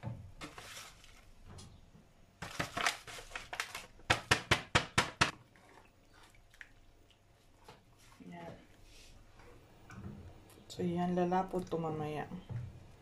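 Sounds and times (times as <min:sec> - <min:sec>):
plastic packet crinkling: 0:02.4 - 0:04.0.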